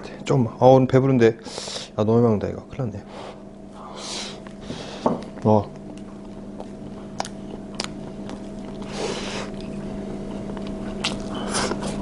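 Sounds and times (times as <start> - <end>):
chewing: 5.2 - 12.0.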